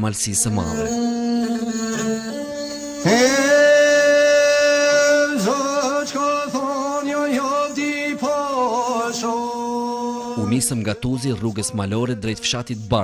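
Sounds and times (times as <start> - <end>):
steady held drone: 0.5 - 12.5
man singing: 3.0 - 13.0.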